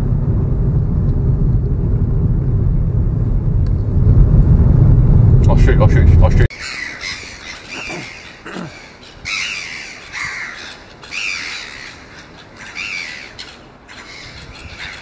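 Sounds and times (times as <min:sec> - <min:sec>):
seagulls crying: 0:06.5 - 0:15.0.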